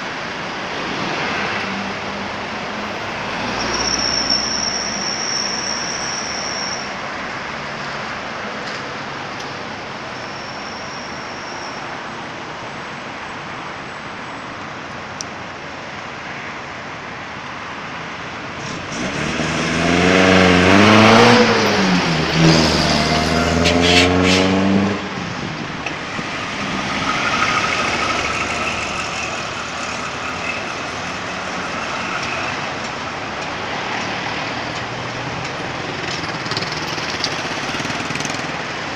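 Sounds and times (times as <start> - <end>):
road traffic: 0.0 - 38.9
motor vehicle passing close by: 18.6 - 30.1.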